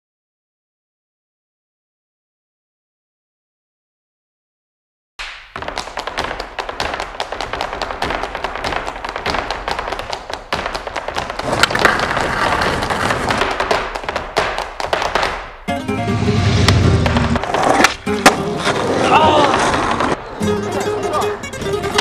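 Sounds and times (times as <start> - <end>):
music with rapid strummed strokes: 20.4 - 22.0.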